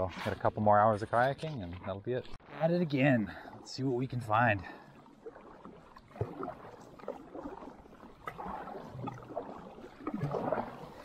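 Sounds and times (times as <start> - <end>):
paddle splashing in water: 4.6 - 11.0.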